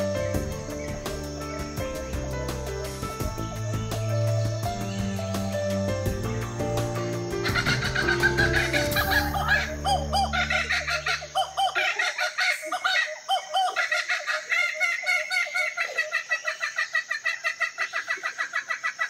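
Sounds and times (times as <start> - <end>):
music with low sustained notes: 0.0 - 11.7.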